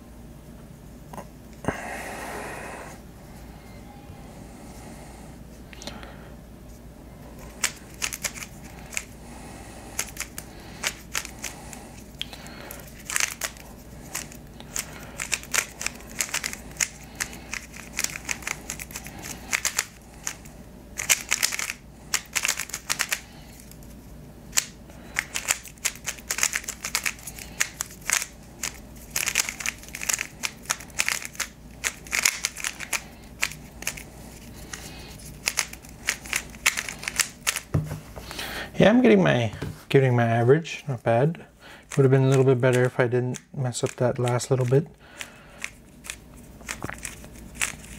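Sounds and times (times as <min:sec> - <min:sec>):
puzzle cube plastic clicks: 0:07.6 - 0:09.1, 0:10.0 - 0:11.5, 0:12.9 - 0:20.4, 0:21.0 - 0:23.7, 0:24.5 - 0:34.0, 0:35.4 - 0:37.7.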